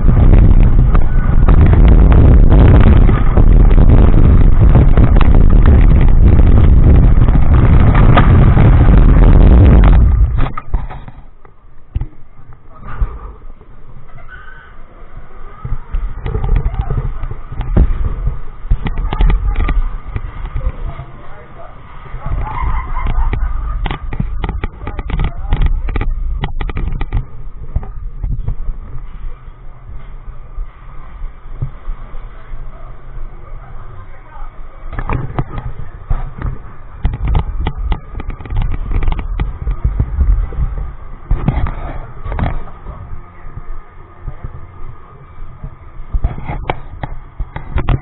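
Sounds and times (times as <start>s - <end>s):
train rumbling on steel track: 0.0s - 11.4s
roller coaster rumbling on track: 0.0s - 48.0s
wind rushing over microphone: 0.0s - 48.0s
sharp clacks and knocks: 15.6s - 20.9s, 22.3s - 28.6s, 34.9s - 43.0s, 45.6s - 48.0s.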